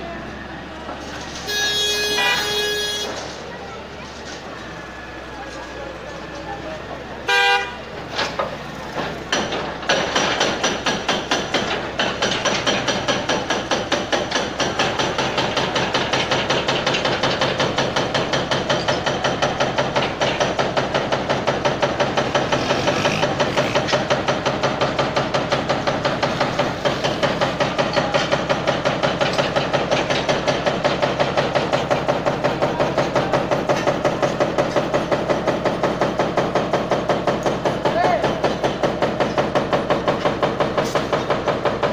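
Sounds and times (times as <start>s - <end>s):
diesel engine running: 0.0s - 41.9s
rapid hammering: 9.0s - 41.9s.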